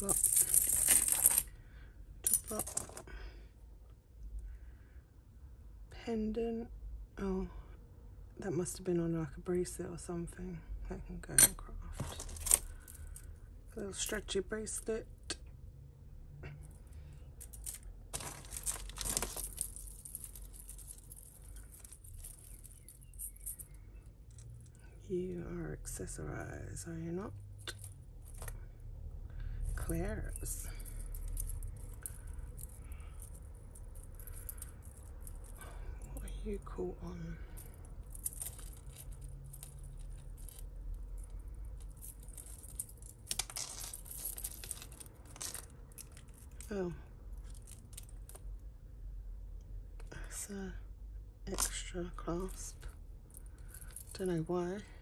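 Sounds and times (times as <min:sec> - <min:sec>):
beads and chains rustling: 0:00.0 - 0:01.6, 0:02.2 - 0:03.2, 0:11.2 - 0:15.0, 0:16.5 - 0:25.4, 0:27.2 - 0:48.6, 0:51.5 - 0:55.0
small chain clicks: 0:00.0 - 0:01.6, 0:16.5 - 0:24.8, 0:29.6 - 0:36.4, 0:37.4 - 0:46.7, 0:47.3 - 0:48.6, 0:52.4 - 0:54.5.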